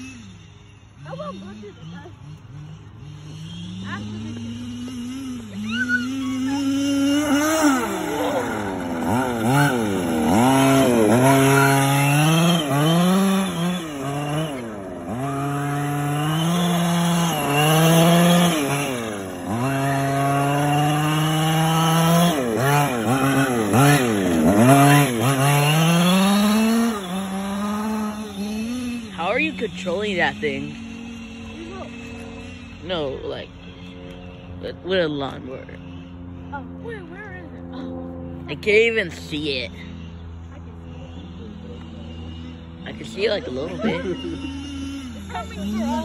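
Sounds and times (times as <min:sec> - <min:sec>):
small two-stroke engine revving: 0:00.0 - 0:46.0.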